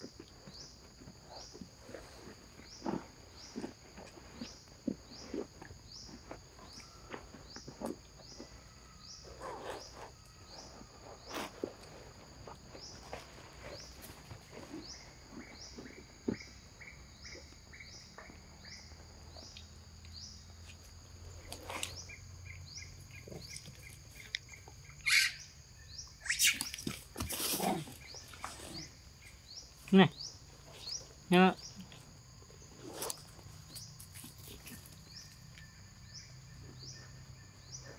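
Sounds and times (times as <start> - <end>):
high chirping: 21.9 - 27.0
macaque calls and clicks: 23.5 - 25.4, 26.1 - 28.7.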